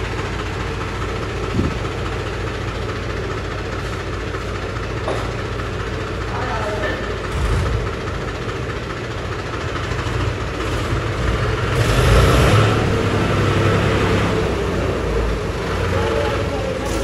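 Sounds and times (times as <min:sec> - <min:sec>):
tractor diesel engine revving: 0:00.0 - 0:17.0.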